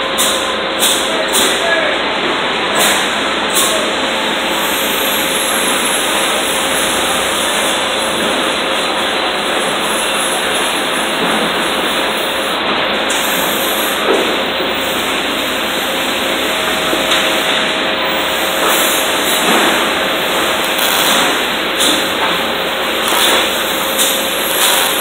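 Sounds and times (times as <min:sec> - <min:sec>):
electric arc welding hiss: 0:18.3 - 0:25.0.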